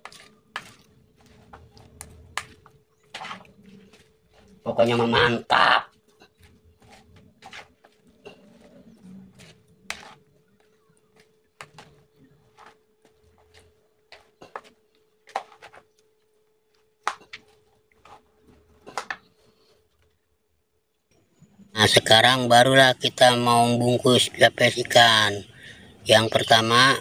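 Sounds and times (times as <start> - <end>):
hands mixing food in bowl: 0.0 - 20.2.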